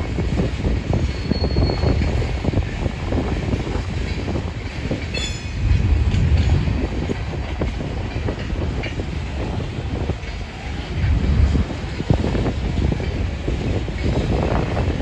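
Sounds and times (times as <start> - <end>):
train cars rumbling past: 0.0 - 15.0
wheels clicking over rail joints: 0.0 - 15.0
high wheel squeal: 1.1 - 2.1.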